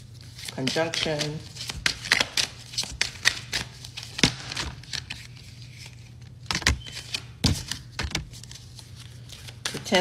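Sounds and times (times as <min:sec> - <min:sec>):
cards snapping and tapping: 0:01.0 - 0:05.1.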